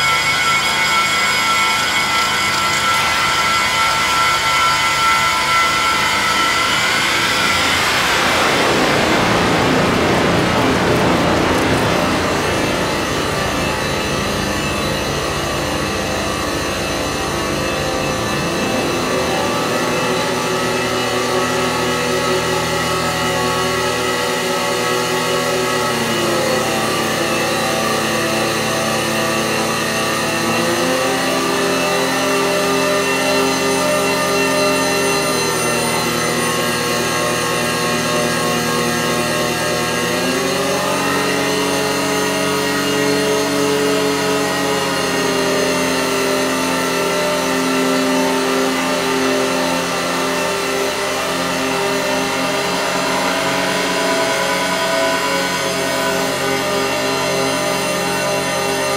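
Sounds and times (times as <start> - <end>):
synthesizer drone: 0.0 - 58.9
fast low shuddering pulse: 5.9 - 21.2.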